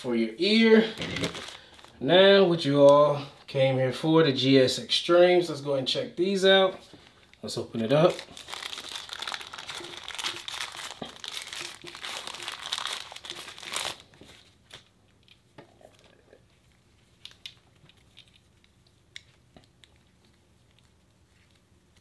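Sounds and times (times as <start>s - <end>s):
plastic bag crinkling: 0.8s - 2.0s, 7.8s - 14.9s.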